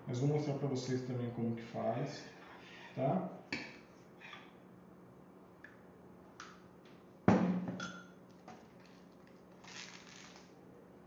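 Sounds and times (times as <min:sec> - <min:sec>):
papery rustle of dough sheets: 0:08.6 - 0:10.6.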